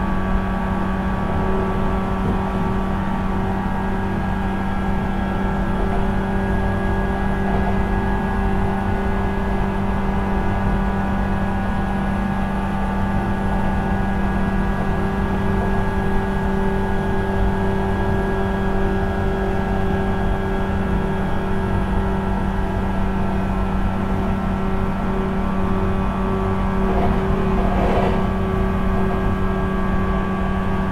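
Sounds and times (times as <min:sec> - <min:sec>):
wheels rumbling on rail: 0:00.0 - 0:30.9
train motor whine: 0:14.4 - 0:30.9.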